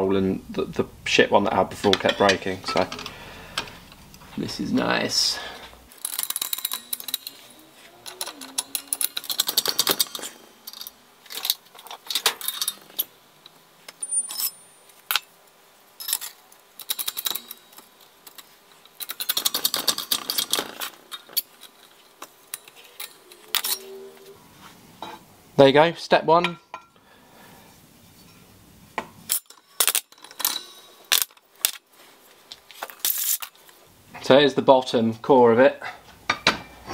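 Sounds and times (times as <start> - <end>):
sharp metal clanks: 1.8 - 3.7
metallic clicking and rattling: 5.9 - 15.3, 16.0 - 23.9, 29.3 - 31.8.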